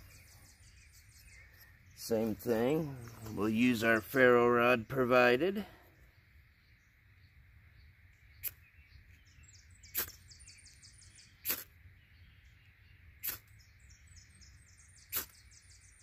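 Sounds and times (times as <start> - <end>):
rapid high chirping: 9.7 - 11.8, 14.5 - 16.0.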